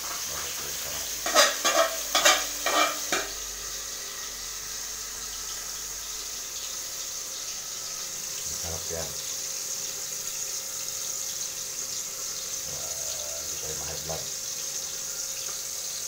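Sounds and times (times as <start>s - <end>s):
food sizzling in a pan: 0.0s - 16.0s
utensil clattering against pan: 1.2s - 3.3s.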